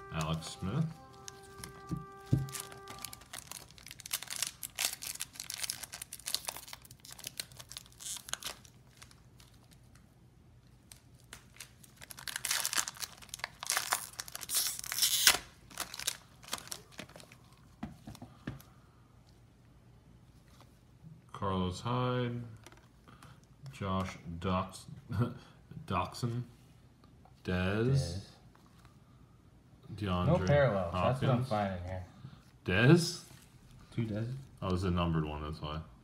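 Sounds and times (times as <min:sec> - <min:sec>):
foil wrapper crinkling and tearing: 0:00.0 - 0:10.0, 0:10.8 - 0:17.4.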